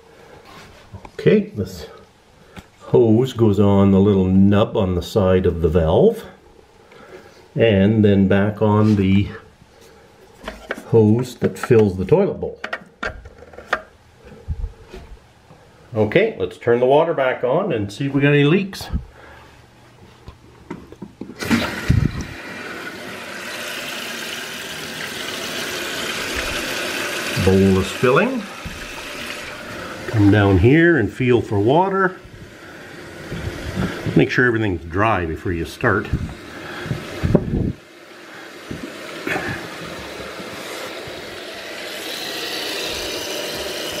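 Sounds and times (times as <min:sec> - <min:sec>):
water hissing through fill valve: 0:21.4 - 0:44.0.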